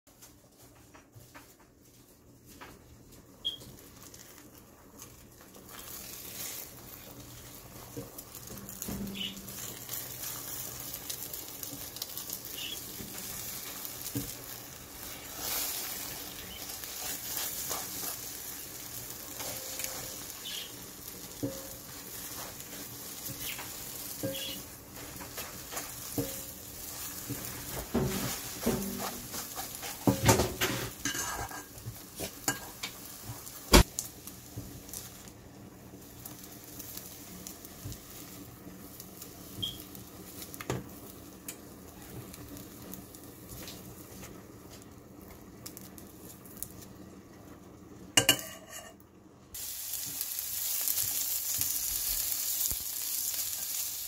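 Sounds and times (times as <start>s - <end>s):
eggs sizzling in a pot: 0.2s - 54.0s
spatula scraping a pot: 27.3s - 31.8s, 48.3s - 49.0s.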